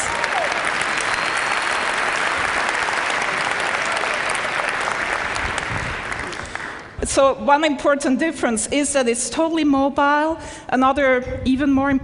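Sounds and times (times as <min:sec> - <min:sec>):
audience applauding: 0:00.0 - 0:07.0.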